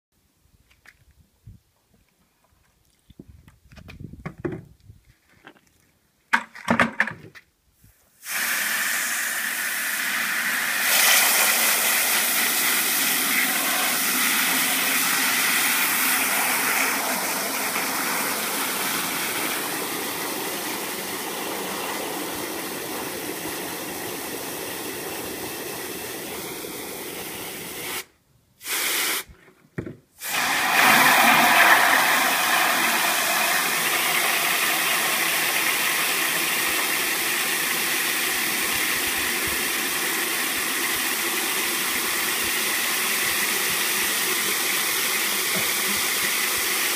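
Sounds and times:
hose spraying water into bucket: 8.2s - 29.3s, 30.2s - 46.9s
liquid soap pouring into bucket: 8.3s - 26.2s, 30.2s - 38.6s.

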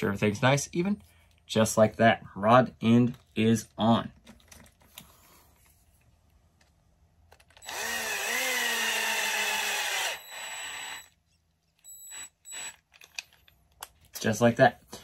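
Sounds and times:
cordless drill whining: 7.4s - 11.2s, 11.8s - 13.1s.

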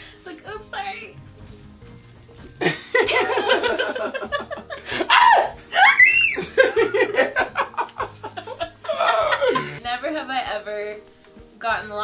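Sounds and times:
people laughing loudly: 2.6s - 9.8s.

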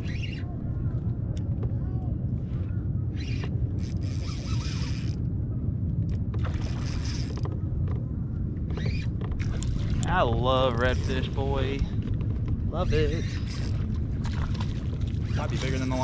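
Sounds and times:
wind rumble on microphone: 0.0s - 16.0s
fishing reel hissing: 3.2s - 5.2s.

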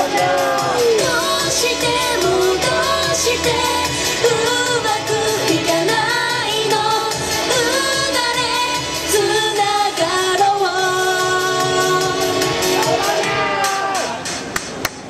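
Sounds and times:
women singing pop song: 0.0s - 12.8s
pop music with steady beat: 0.0s - 14.8s.

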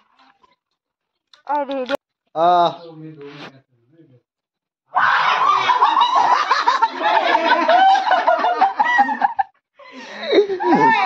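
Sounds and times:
people laughing and giggling: 5.3s - 11.0s.

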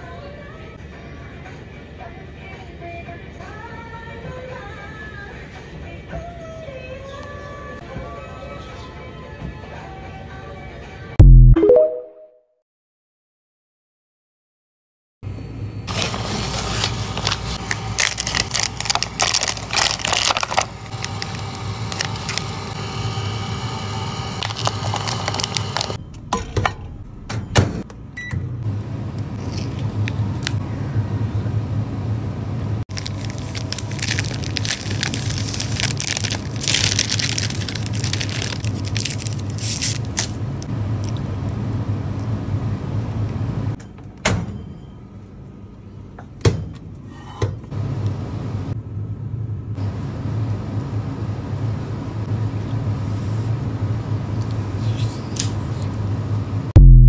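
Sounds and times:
food packaging crinkling: 15.9s - 22.6s, 24.4s - 26.0s, 32.9s - 40.4s
steady low hum: 55.9s - 57.0s.

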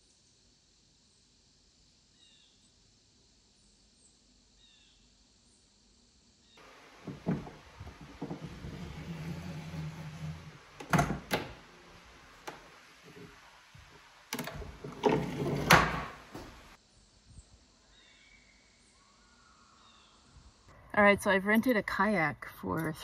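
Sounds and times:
lever scraping along track: 6.6s - 16.8s
faint bird chirps: 17.0s - 20.9s.

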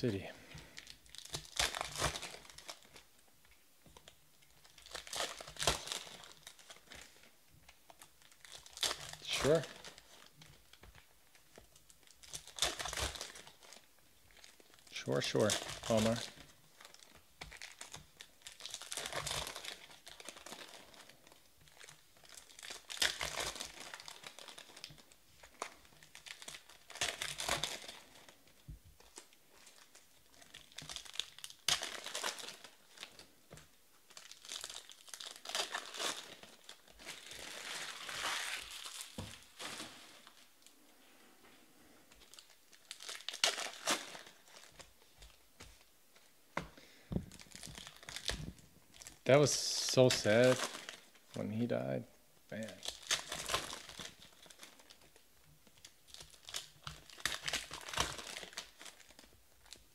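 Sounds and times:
foil wrappers crinkling: 0.1s - 3.2s, 3.9s - 51.7s, 52.5s - 59.9s.

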